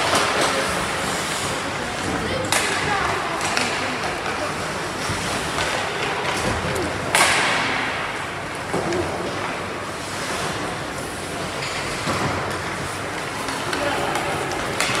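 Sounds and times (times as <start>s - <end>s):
skates scraping ice: 0.0s - 7.6s
faint voices: 0.0s - 9.9s
hockey sticks clacking: 0.0s - 15.0s.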